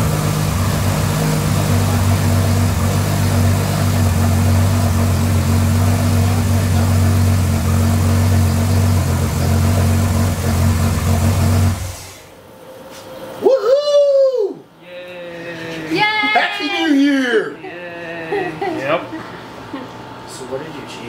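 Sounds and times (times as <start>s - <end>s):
car engine idling: 0.0s - 12.4s.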